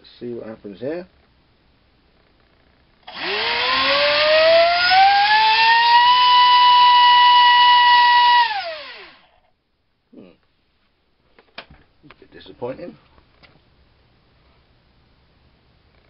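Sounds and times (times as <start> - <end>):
electric motor propeller whine: 3.1 - 9.4.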